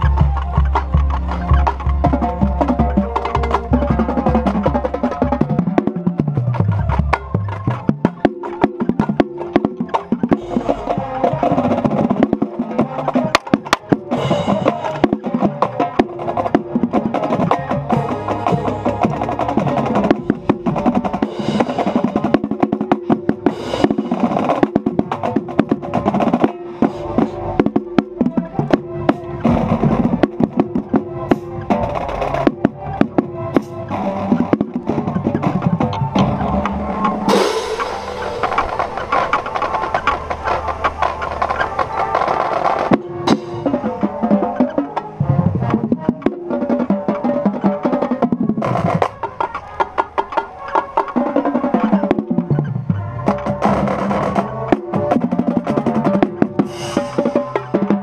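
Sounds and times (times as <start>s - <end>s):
bass drums: 0.0s - 41.6s
marching band brass: 0.0s - 58.0s
snare drums: 0.0s - 58.0s
tenor drums: 0.0s - 58.0s
cymbal crash: 37.2s - 40.5s.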